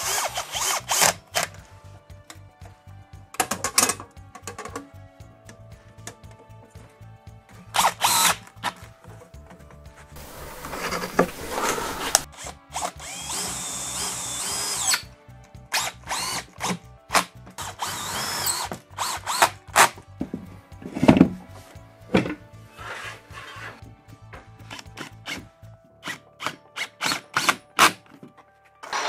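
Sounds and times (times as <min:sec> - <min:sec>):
cordless drill whining: 0:00.0 - 0:01.6, 0:07.8 - 0:08.5, 0:10.2 - 0:15.1, 0:15.7 - 0:19.9.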